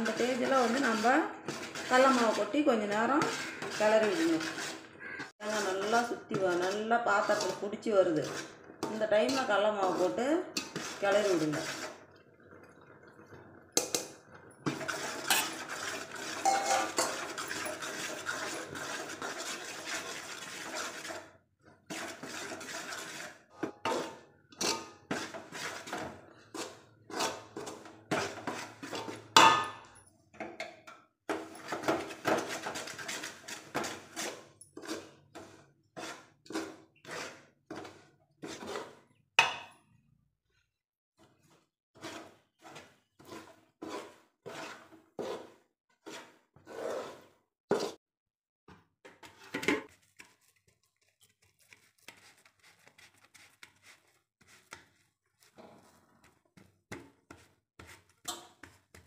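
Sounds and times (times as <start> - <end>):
metal spoon scraping a pot: 0.0 - 12.1, 13.8 - 39.7, 41.2 - 48.0, 49.1 - 59.0.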